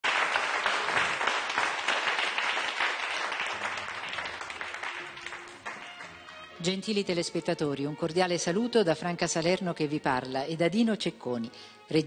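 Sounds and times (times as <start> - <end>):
crowd applauding: 0.0 - 6.6.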